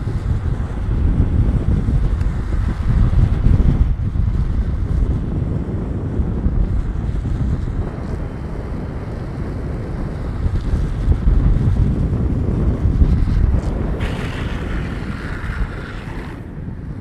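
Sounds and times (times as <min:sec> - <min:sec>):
longboard wheels rolling on asphalt: 0:00.0 - 0:17.0
wind blasting microphone: 0:00.0 - 0:17.0
wheels squealing in slide: 0:14.0 - 0:16.5.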